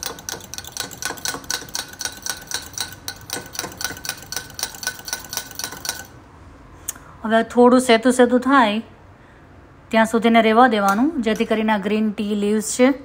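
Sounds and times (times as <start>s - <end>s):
spoon clinking in a ceramic mug: 0.0s - 6.2s.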